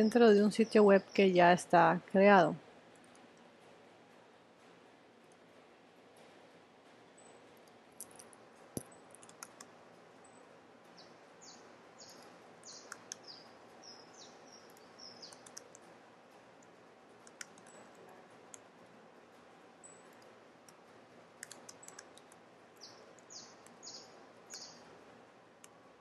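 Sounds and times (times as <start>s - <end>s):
bird chirping: 0.0s - 1.6s, 10.2s - 15.6s, 22.8s - 24.9s
keyboard typing: 9.1s - 9.7s, 14.7s - 15.8s, 17.2s - 18.0s, 21.4s - 22.4s.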